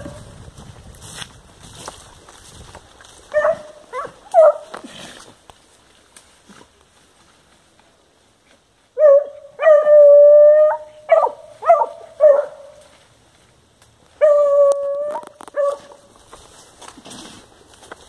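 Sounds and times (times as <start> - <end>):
dog baying and yelping: 3.3 - 4.7, 9.0 - 12.8.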